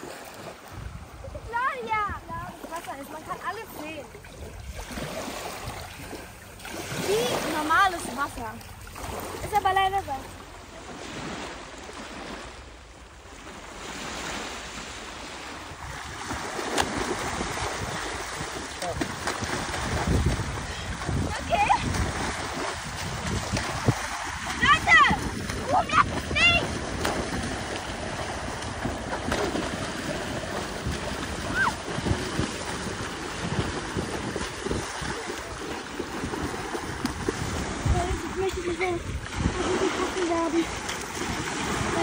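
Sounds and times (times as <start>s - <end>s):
small waves breaking on shore: 0.0s - 42.0s
wind rumbling on microphone: 0.0s - 42.0s
water splashing from kicking: 15.7s - 42.0s.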